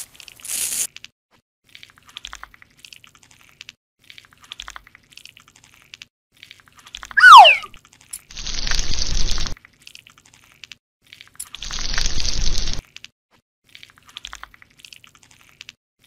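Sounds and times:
tone sliding down in pitch: 7.2s - 7.7s.

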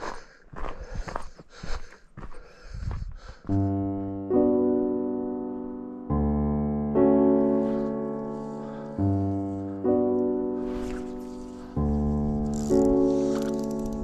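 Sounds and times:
slow piano chords: 3.5s - 14.0s.

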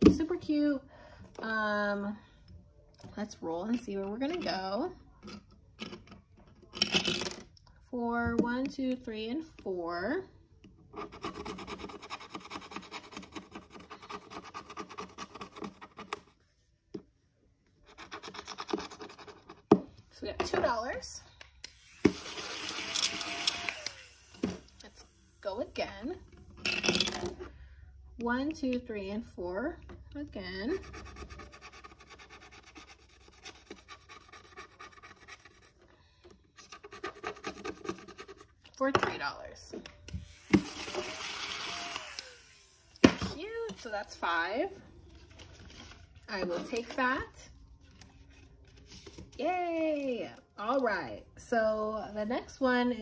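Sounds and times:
scratch-off sticker being scratched: 30.8s - 35.9s.

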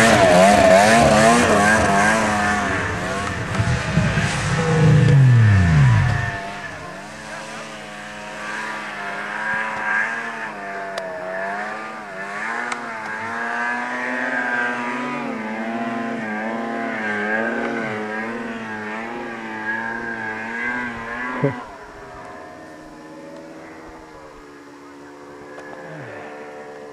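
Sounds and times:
steady low drone: 0.0s - 9.3s
snowmobile engine revving: 0.0s - 24.4s.

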